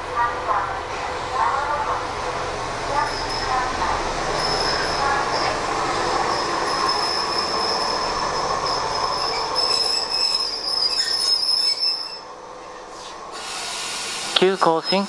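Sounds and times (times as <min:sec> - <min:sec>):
train running noise: 0:00.0 - 0:15.0
train wheels squealing: 0:03.0 - 0:03.7, 0:04.3 - 0:12.3.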